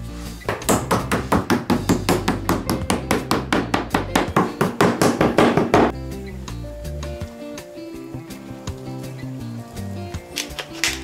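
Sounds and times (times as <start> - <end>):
meat mallet pounding meat: 0.5 - 5.9.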